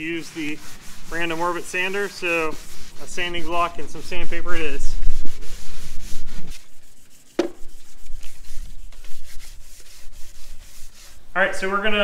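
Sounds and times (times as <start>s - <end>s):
sandpaper rasping on wood: 0.0s - 11.3s.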